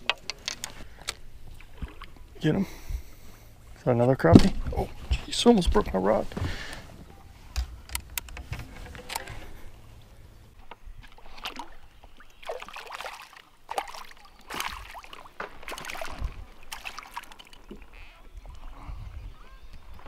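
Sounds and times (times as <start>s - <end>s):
sharp clicks and knocks: 0.0s - 1.2s
fish splashing in water: 11.0s - 18.6s.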